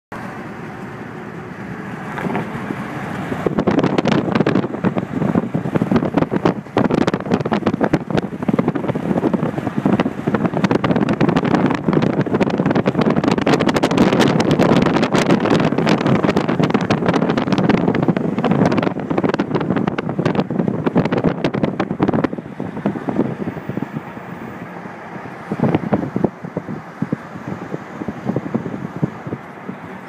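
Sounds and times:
car road noise: 0:00.1 - 0:30.0
wind buffeting microphone: 0:00.5 - 0:30.0.

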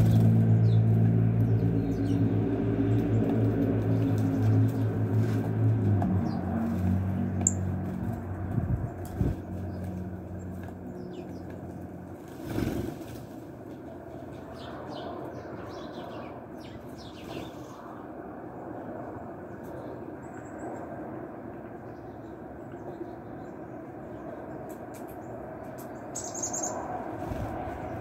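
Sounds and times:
low engine hum: 0:00.0 - 0:28.0
bird wings flapping: 0:12.2 - 0:13.5
faint high bird chirps: 0:26.0 - 0:26.9.

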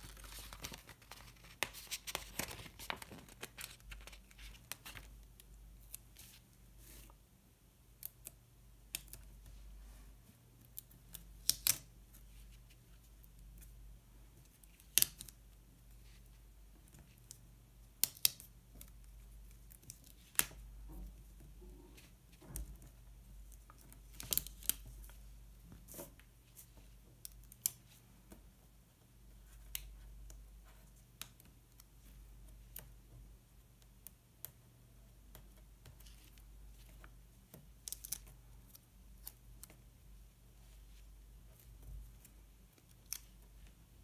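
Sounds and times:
clicks and taps of paper handling: 0:00.1 - 0:06.4.

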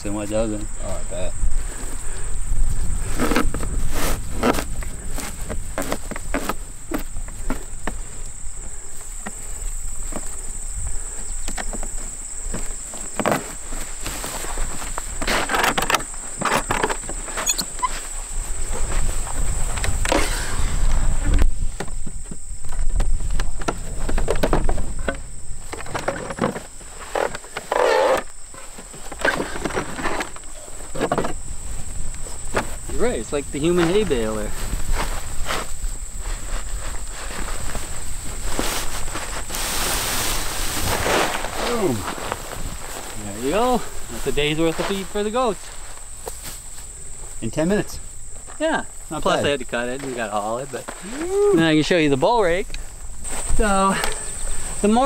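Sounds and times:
insects chirring: 0:00.0 - 0:55.0
wooden hay baler creaking: 0:02.8 - 0:46.1.

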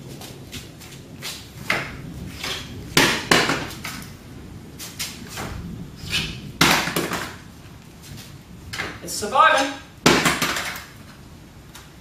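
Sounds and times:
multimeter hitting concrete floor: 0:10.1 - 0:11.0.

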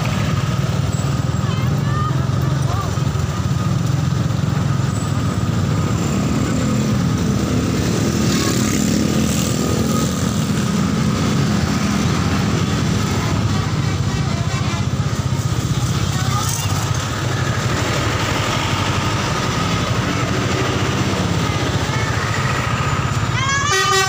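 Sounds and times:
motorcycle engines rumbling: 0:00.0 - 0:24.0
road traffic: 0:00.0 - 0:24.0.

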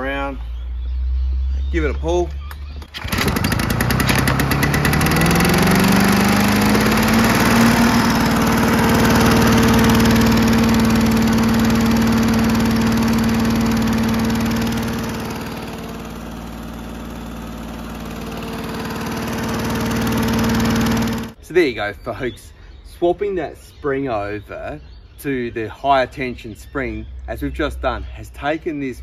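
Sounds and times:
lawn mower engine running: 0:02.7 - 0:21.4.

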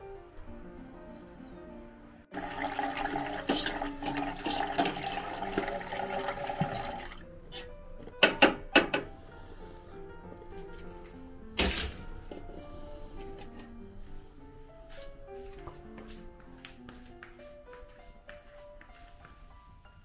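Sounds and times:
hot water pouring into pot: 0:02.3 - 0:07.2.

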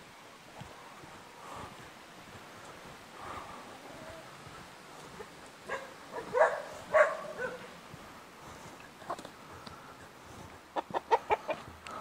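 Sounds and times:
dog barking: 0:05.7 - 0:07.8.

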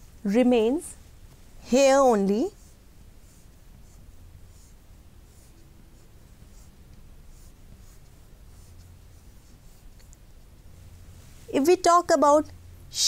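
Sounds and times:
chalk scratching on chalkboard: 0:01.8 - 0:10.5.

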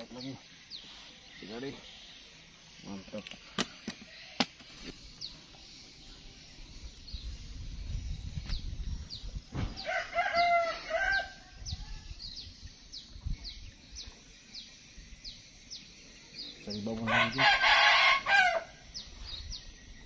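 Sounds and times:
rooster crowing: 0:09.8 - 0:11.5, 0:17.1 - 0:18.8.

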